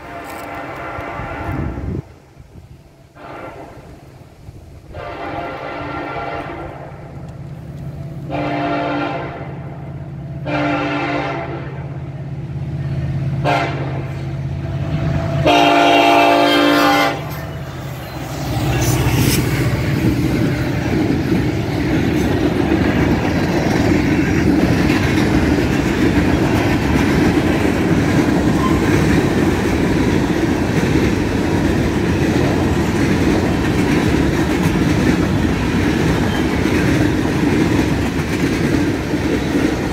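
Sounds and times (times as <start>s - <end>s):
train horn blasts: 0.0s - 2.0s, 3.0s - 4.1s, 4.8s - 7.1s, 8.2s - 12.0s, 13.4s - 21.7s
diesel locomotive engine rumbling: 0.0s - 39.9s
wheels clacking over rail joints: 16.6s - 39.9s.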